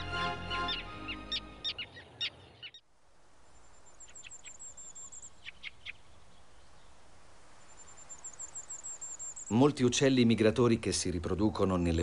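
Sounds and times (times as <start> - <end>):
tern calls: 0.0 - 2.9, 3.5 - 10.0
high bird trill: 0.6 - 2.9, 3.8 - 6.3.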